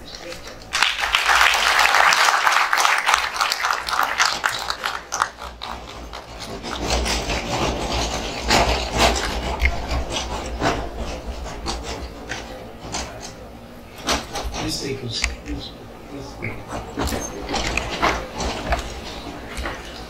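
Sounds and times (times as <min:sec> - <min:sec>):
applause: 0:00.1 - 0:06.6.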